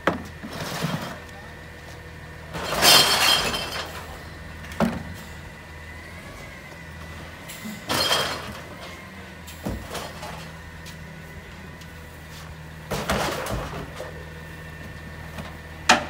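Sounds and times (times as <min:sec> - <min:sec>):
recycling rattling into hopper: 0:00.0 - 0:01.8, 0:02.4 - 0:16.0
garbage truck idling: 0:00.0 - 0:16.0.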